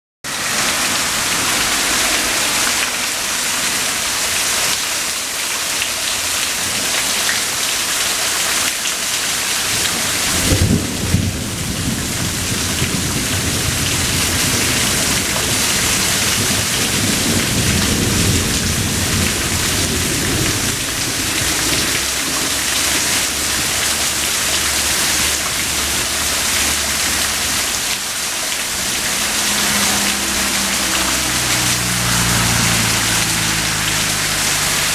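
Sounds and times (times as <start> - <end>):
steady rain falling: 0.2 - 34.9
thunder clap rumbling: 10.0 - 23.7.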